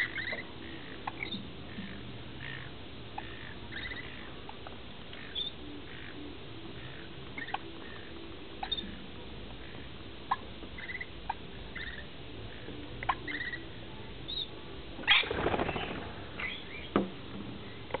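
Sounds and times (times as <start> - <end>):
bird chirps: 0.0 - 1.5, 2.5 - 9.0, 10.3 - 13.7, 14.3 - 14.5, 15.1 - 17.0
wings flapping: 15.0 - 16.8.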